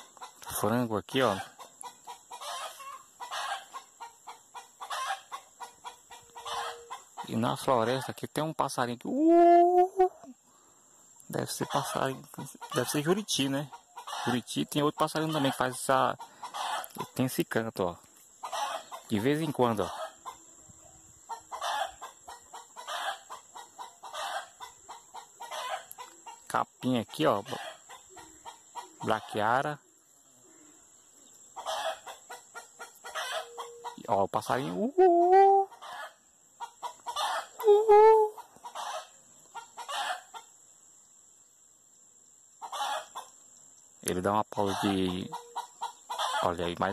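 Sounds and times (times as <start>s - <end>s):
hen clucking: 0.0s - 8.2s, 11.4s - 17.3s, 18.3s - 20.5s, 21.2s - 29.8s, 31.5s - 40.6s, 42.6s - 43.4s, 44.3s - 46.9s
chickens cackling: 0.0s - 8.4s, 9.1s - 40.7s, 42.6s - 43.6s, 44.3s - 46.9s
hen squawk: 4.6s - 7.3s, 14.0s - 14.4s, 16.2s - 17.0s, 18.4s - 19.0s, 31.6s - 40.4s, 42.6s - 43.3s.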